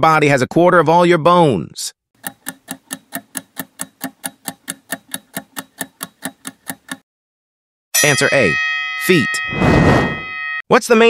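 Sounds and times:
timer ticking: 0:02.2 - 0:07.0.

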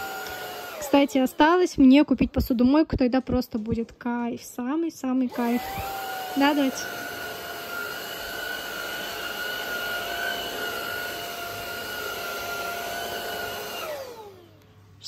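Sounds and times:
stick vacuum whining: 0:00.0 - 0:01.4, 0:05.3 - 0:14.6
vacuum motor spinning down: 0:00.0 - 0:01.6, 0:05.3 - 0:14.6.

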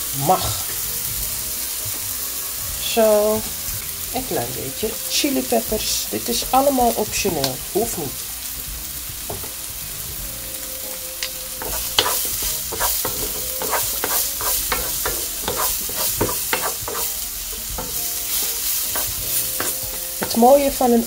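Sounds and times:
vegetables sizzling in frying pan: 0:00.0 - 0:21.0
wooden spatula scraping pan: 0:11.6 - 0:20.6.

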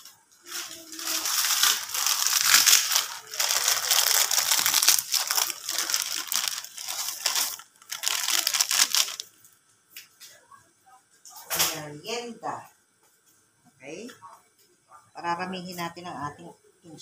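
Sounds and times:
plastic packets crinkling: 0:00.0 - 0:09.4.

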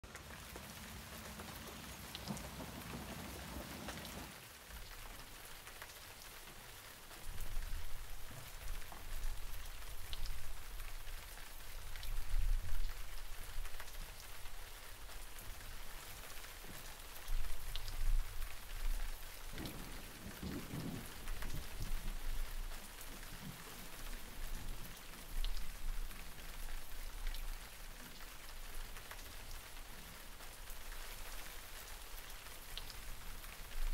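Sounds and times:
rain hissing: 0:00.0 - 0:33.9
raindrops ticking: 0:00.0 - 0:33.9.

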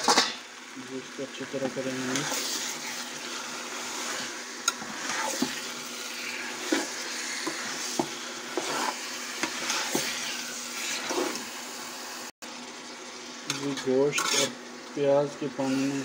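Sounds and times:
meat sizzling in oil: 0:00.0 - 0:16.0
metal spoon scraping a pot: 0:06.2 - 0:11.4, 0:14.1 - 0:14.6.

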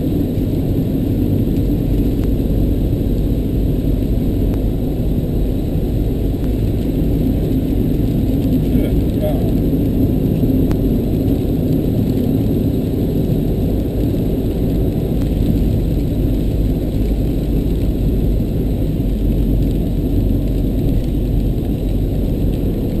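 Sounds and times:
road and engine noise in car: 0:00.0 - 0:23.0.

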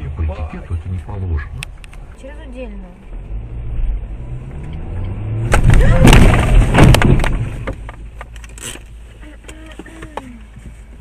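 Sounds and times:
car engine accelerating: 0:00.0 - 0:07.9
loud car crash impacts: 0:05.4 - 0:07.9.

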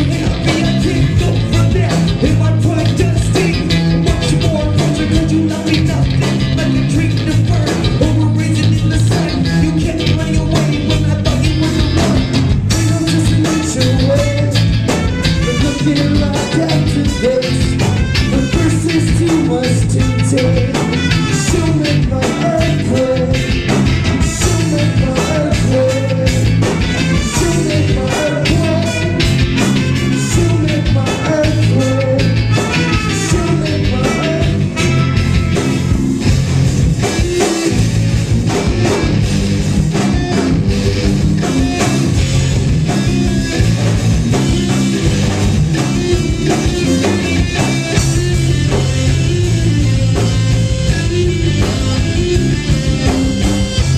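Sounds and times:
bass guitar: 0:00.0 - 0:53.9
drum kit: 0:00.0 - 0:53.9
electric guitar: 0:00.0 - 0:53.9
trumpet playing melody: 0:14.8 - 0:19.1, 0:19.9 - 0:22.0, 0:26.7 - 0:36.2.

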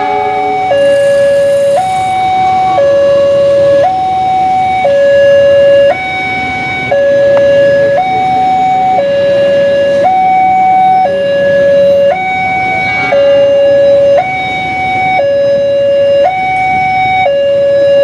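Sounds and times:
two-tone level crossing alarm: 0:00.0 - 0:18.0.

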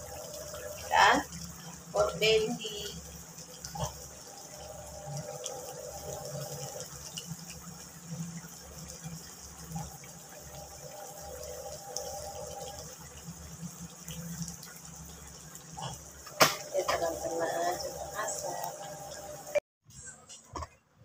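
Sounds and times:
curry bubbling in a wok: 0:02.6 - 0:19.1.

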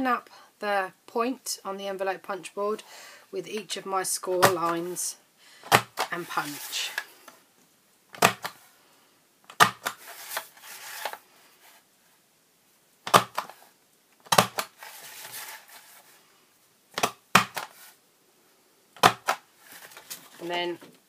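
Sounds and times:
card sliding on board: 0:05.6 - 0:07.4, 0:08.2 - 0:08.6, 0:09.5 - 0:11.2, 0:13.1 - 0:13.6, 0:14.3 - 0:16.0, 0:17.0 - 0:18.0
punch board clicking: 0:08.2 - 0:08.6, 0:19.0 - 0:19.4.

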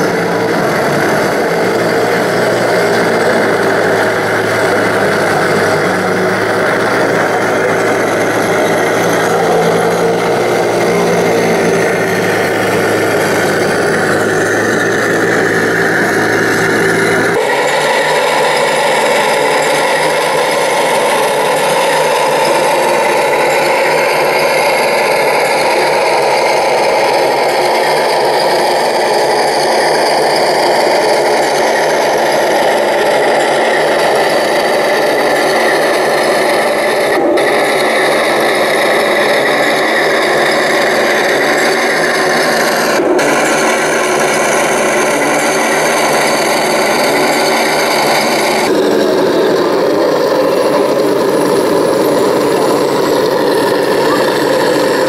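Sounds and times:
small electric motors grinding: 0:00.0 - 0:55.0.

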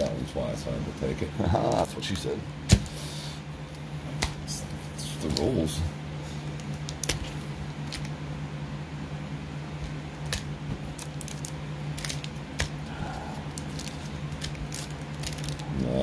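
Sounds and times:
steady low hum: 0:00.0 - 0:16.0
foil packs crinkling: 0:10.1 - 0:16.0.

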